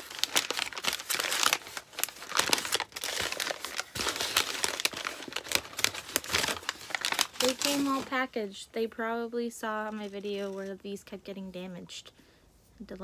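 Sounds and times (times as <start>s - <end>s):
paper crinkling and crackling: 0.0s - 8.4s, 9.8s - 10.8s.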